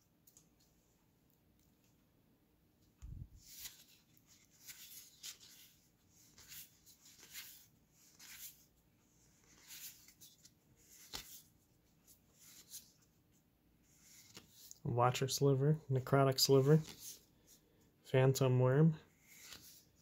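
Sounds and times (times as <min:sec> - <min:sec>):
cards sliding swish: 0:03.0 - 0:08.6, 0:09.2 - 0:11.5, 0:12.1 - 0:13.1, 0:13.9 - 0:14.8, 0:16.5 - 0:17.6, 0:19.2 - 0:20.0.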